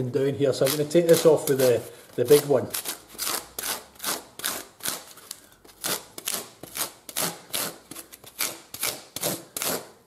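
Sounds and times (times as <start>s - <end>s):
rasp scraping across leather: 5.8s - 9.9s.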